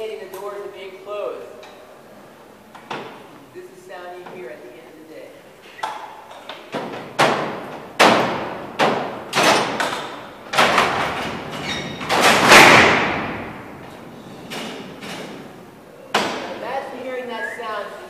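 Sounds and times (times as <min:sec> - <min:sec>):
steel doors clanking shut: 0:05.7 - 0:16.7
door slam echoing: 0:05.8 - 0:16.8.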